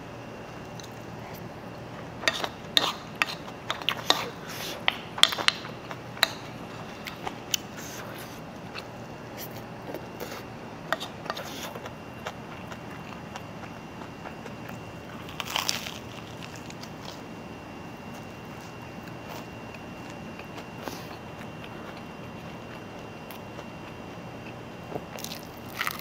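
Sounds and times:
spoon scraping a bowl: 2.2 - 4.8.

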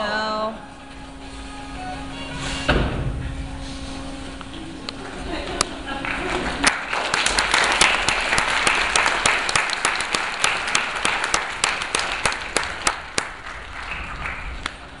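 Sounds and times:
audience applauding: 4.9 - 15.0.

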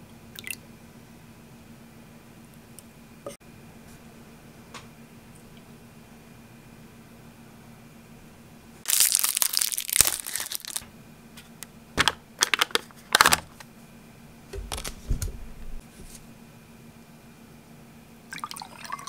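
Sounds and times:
plastic wrapper crinkling: 8.9 - 10.8, 12.0 - 13.6.

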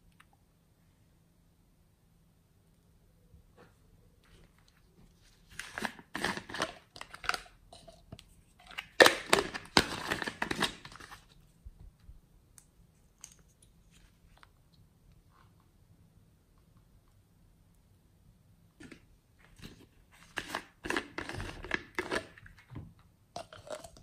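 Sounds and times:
plastic pieces crackling and scraping: 8.6 - 11.3.

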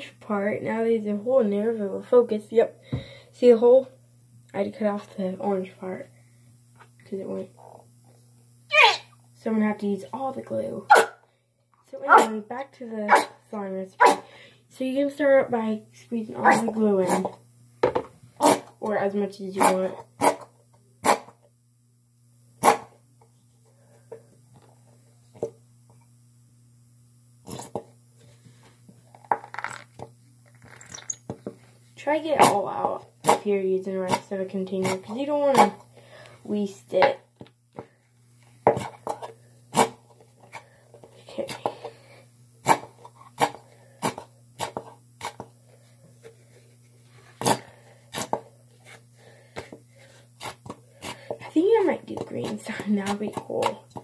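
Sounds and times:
steady low hum: 0.0 - 54.0
glue bottle squelching: 30.6 - 31.3.

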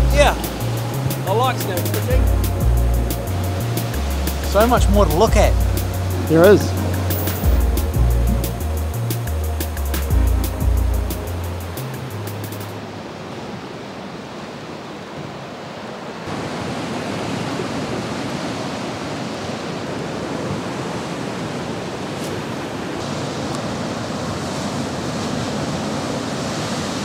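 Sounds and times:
sea swell rushing: 0.0 - 13.7.

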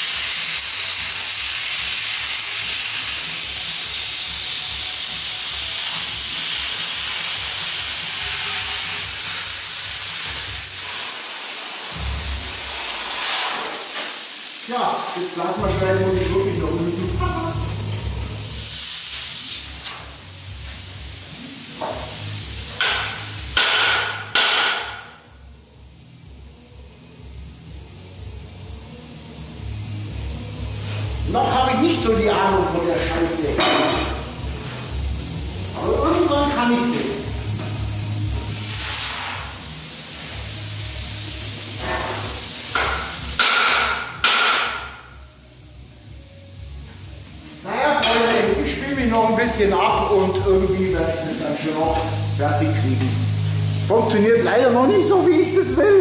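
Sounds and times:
steady hiss: 0.0 - 56.0
hammer striking steel plate: 22.8 - 25.2, 33.6 - 34.2, 41.9 - 45.1.

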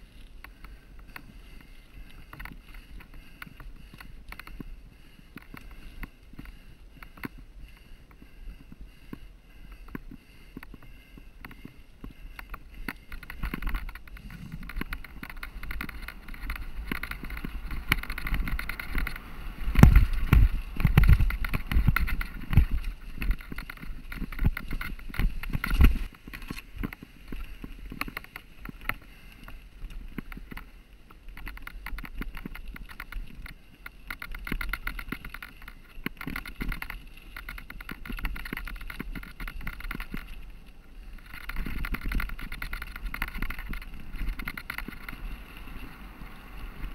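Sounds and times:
bike clattering and rattling: 0.0 - 46.9
bike tyres rolling over dirt: 0.0 - 46.9
bike jolts and thumps: 9.8 - 29.0.

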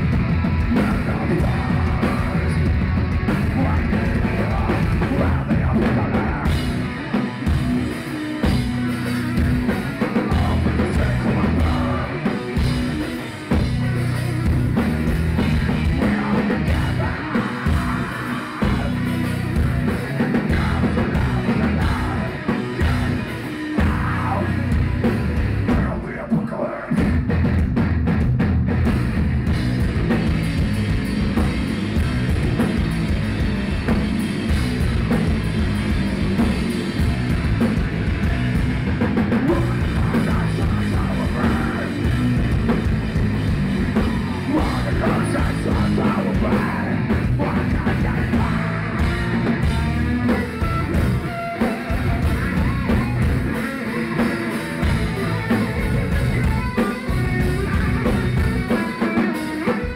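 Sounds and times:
drum kit: 0.0 - 59.9
electric guitar: 0.0 - 59.9
person singing: 0.6 - 2.8, 3.4 - 6.8, 10.0 - 13.3, 15.4 - 24.8, 39.3 - 42.2, 44.4 - 52.0.

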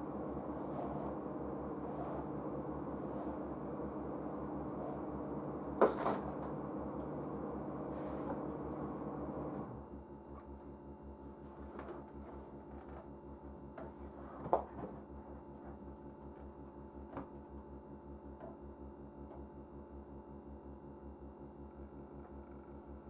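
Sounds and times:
low droning hum: 0.0 - 9.5.

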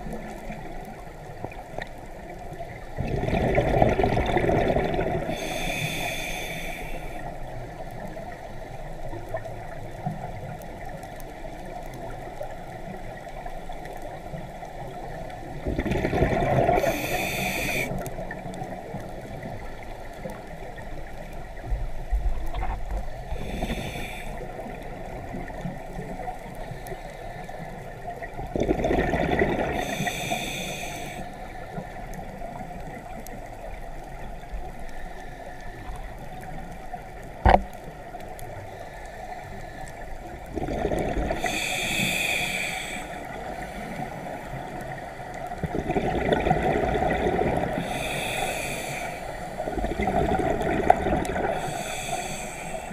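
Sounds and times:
regulator bubbles gurgling: 0.0 - 5.9, 15.1 - 19.8, 28.0 - 31.2, 40.3 - 52.9
steady underwater hiss: 0.0 - 52.9.

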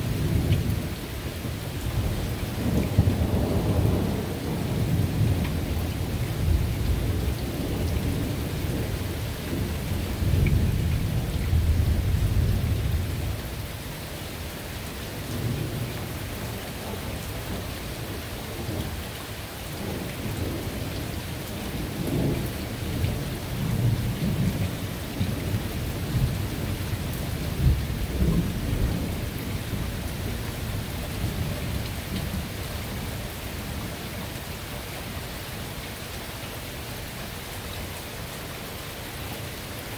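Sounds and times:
falling rain: 0.0 - 39.9
thunder rumbling: 1.9 - 13.7, 19.8 - 33.9.

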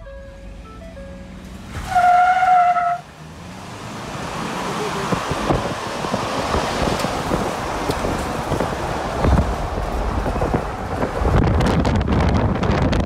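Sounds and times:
vehicle rumble: 0.0 - 13.0
wind buffeting microphone: 5.0 - 13.0.

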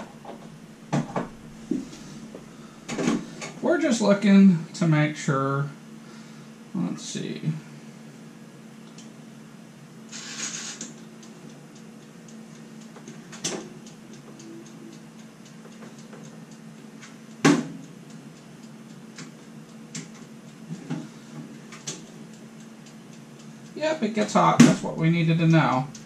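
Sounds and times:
timer dial ticking: 10.6 - 20.7, 21.5 - 26.0.

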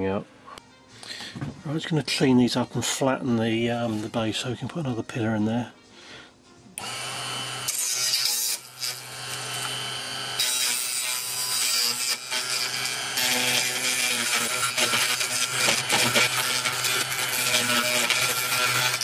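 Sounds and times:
milling machine cutting plastic: 6.8 - 19.0.

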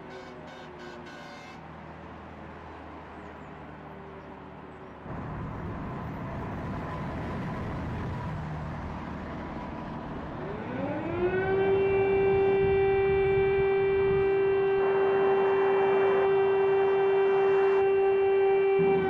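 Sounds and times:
air-raid siren wailing: 0.0 - 3.1, 5.1 - 19.0
steady low rumble: 5.1 - 10.2.

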